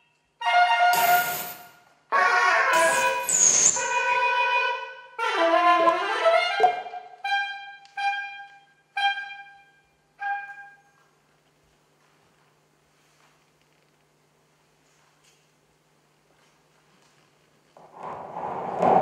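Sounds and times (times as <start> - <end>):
soprano saxophone improvising: 2.1 - 9.6.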